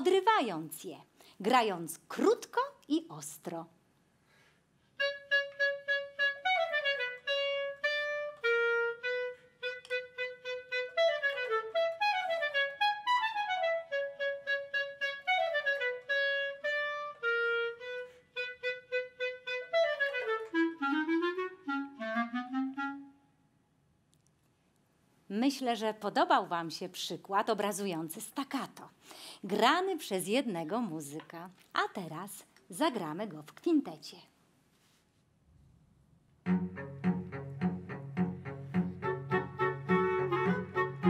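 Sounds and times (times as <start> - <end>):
woodwind playing staccato notes: 5.0 - 23.2, 36.4 - 41.0.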